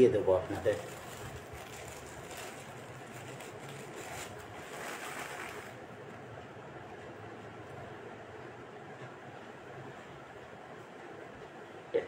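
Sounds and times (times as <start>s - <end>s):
low steady hum: 0.0s - 12.0s
cloth mask rustling: 0.6s - 5.9s.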